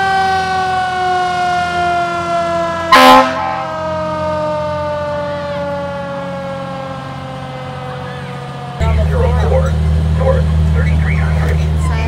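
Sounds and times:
fire engine siren wailing: 0.0 - 12.0
truck engine running: 0.0 - 12.0
air horn blast: 2.9 - 3.9.

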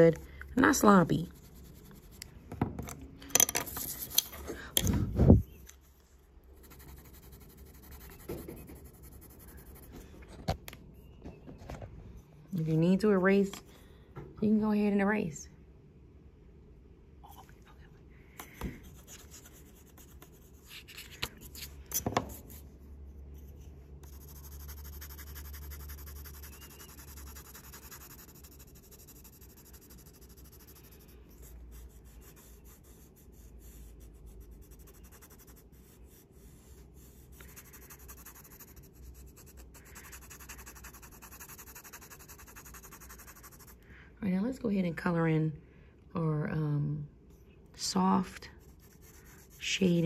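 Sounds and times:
pencil and eraser on paper: 0.1 - 2.4, 3.7 - 4.4, 6.6 - 10.4, 18.4 - 43.8, 48.5 - 50.0.

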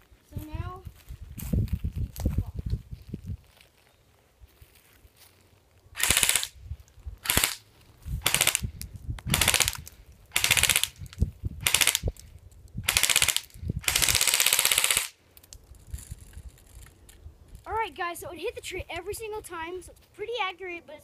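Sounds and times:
airsoft gun firing bursts: 6.0 - 6.5, 7.2 - 7.6, 8.2 - 8.6, 9.3 - 11.0, 11.6 - 12.1, 12.8 - 15.2.

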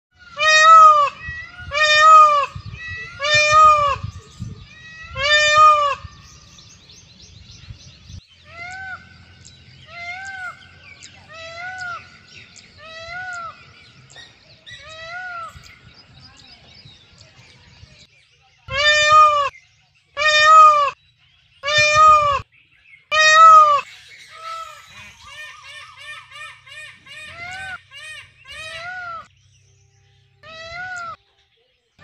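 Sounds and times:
peafowl calling: 0.1 - 6.6, 8.4 - 15.7, 18.7 - 19.6, 20.2 - 21.0, 21.6 - 22.5, 23.1 - 29.3, 30.4 - 31.2.

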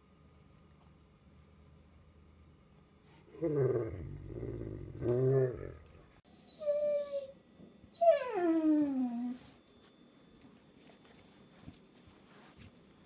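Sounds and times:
dog grumbling: 3.3 - 5.8
dog whining: 3.4 - 9.4.

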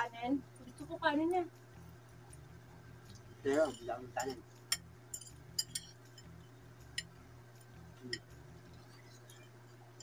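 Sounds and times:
steady low hum: 0.0 - 10.0
cutlery clicking on plates: 4.2 - 7.1.

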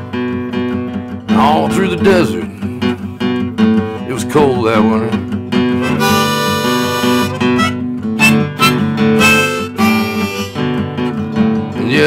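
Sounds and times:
strummed acoustic guitar: 0.0 - 12.0
harmonica playing chords: 5.7 - 11.1.

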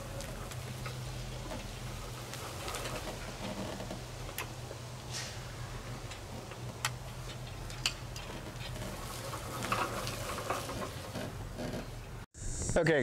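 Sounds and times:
grill clinking and rattling: 0.0 - 12.2.

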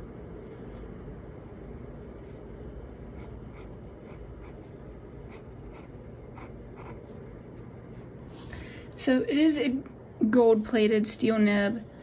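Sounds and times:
low background hum: 0.0 - 12.0
pen nib scratching paper: 3.2 - 7.2.

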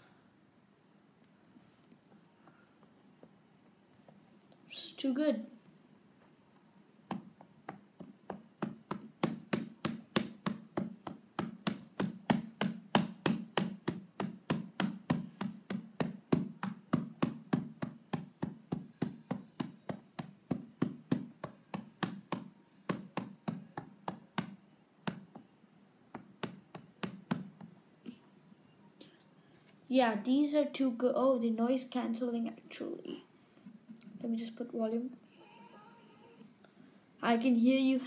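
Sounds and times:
fingers tapping rubber pads: 7.0 - 25.5, 26.1 - 27.8.

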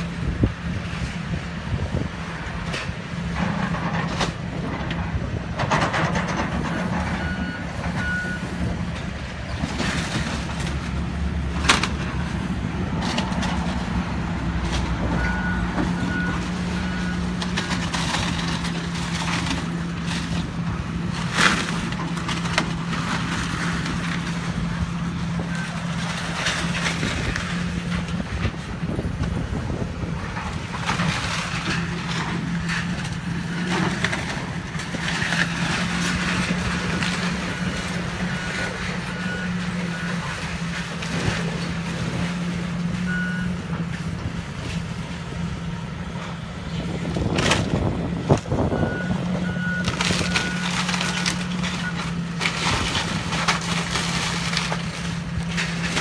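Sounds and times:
excavator diesel engine running: 0.0 - 56.0
wood breaking and debris falling: 13.0 - 24.7, 30.4 - 38.9, 49.8 - 56.0.

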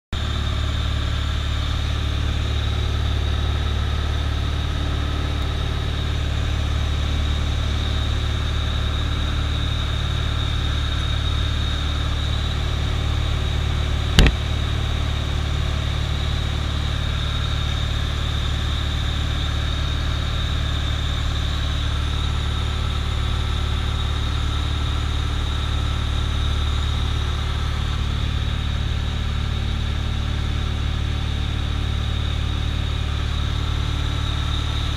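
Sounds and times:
propeller plane engine drone: 0.1 - 34.9
sharp knock: 14.2 - 14.4.

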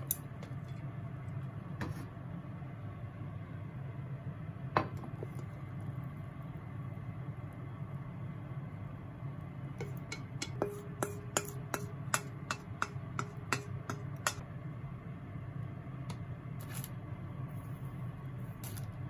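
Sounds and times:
steady low hum: 0.0 - 19.0
chopsticks clinking on metal bowl: 9.8 - 14.4.

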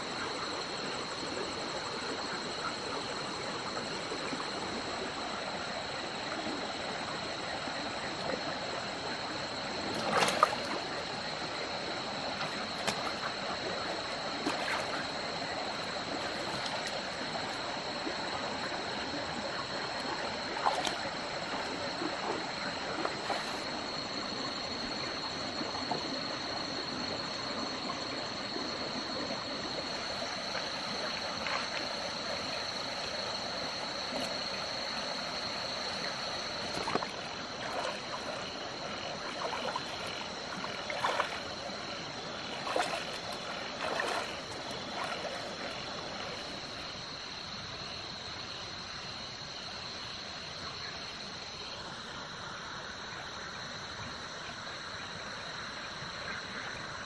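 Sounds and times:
cricket trill: 0.0 - 57.0
stream flowing over rocks: 3.2 - 27.6, 28.2 - 47.8
small splashes in water: 9.7 - 24.2, 29.2 - 47.1.

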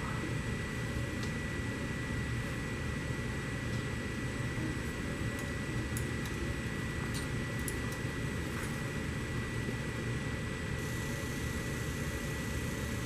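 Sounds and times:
machinery hum and hiss: 0.0 - 13.0
high whine: 8.1 - 13.0.

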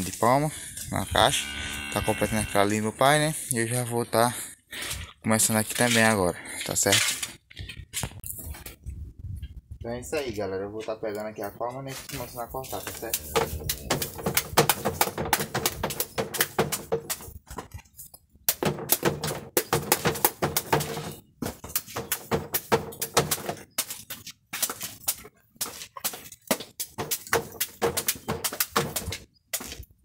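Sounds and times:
machete chopping cactus: 13.0 - 17.3, 25.7 - 29.8.

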